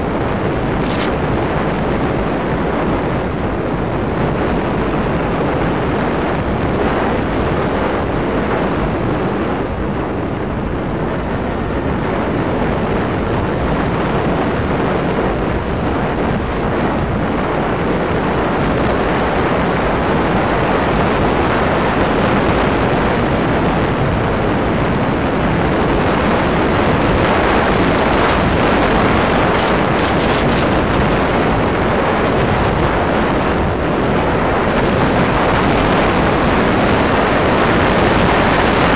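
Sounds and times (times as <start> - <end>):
wind rushing on microphone: 0.0 - 38.9
model plane motor: 0.8 - 1.2, 19.1 - 38.9.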